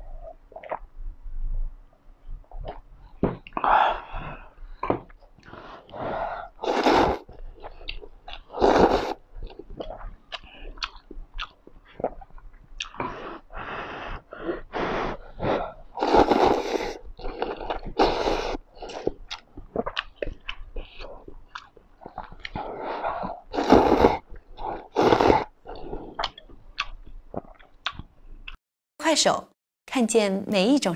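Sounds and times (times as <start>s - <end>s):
person slurping noodles: 3.6s - 26.5s
wet chewing and lip-smacking: 7.1s - 28.6s.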